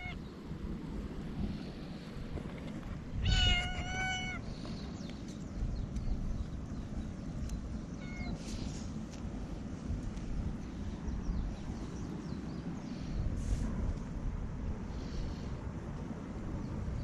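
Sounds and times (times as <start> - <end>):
cat meowing: 3.2 - 4.4, 8.0 - 8.4.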